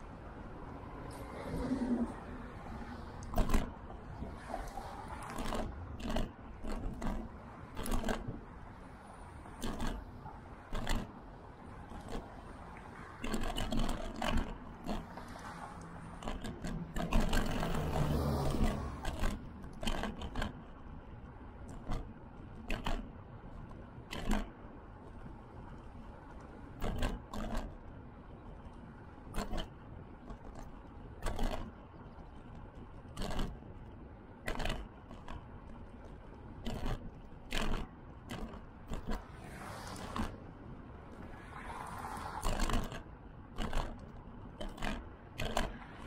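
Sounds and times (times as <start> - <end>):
wind and tyre rumble: 0.0 - 46.0
car passing: 0.7 - 3.3, 4.1 - 5.9, 14.9 - 16.2, 17.4 - 19.1, 39.2 - 42.6.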